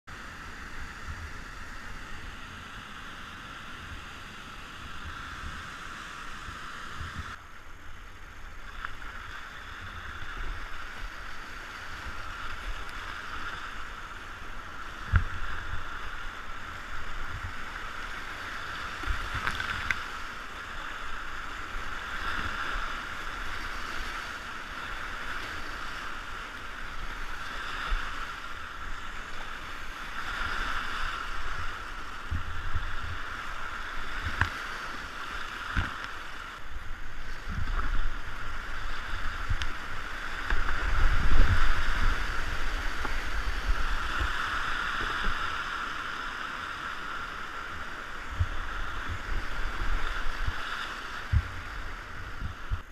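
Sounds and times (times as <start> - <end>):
rushing whitewater: 0.1 - 52.9.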